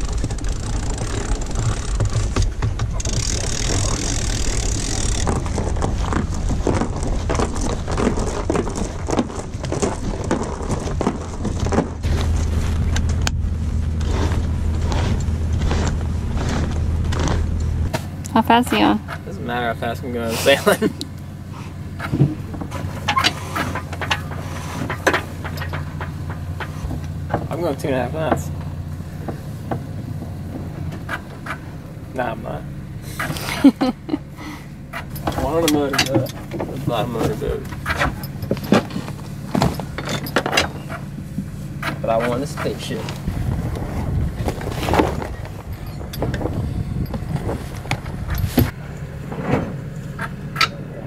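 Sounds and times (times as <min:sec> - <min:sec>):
flaps and knocks: 0:00.0 - 0:18.1
boat engine humming: 0:00.0 - 0:51.0
sailboat low rumble: 0:00.0 - 0:51.0
wind on microphone: 0:43.2 - 0:48.8.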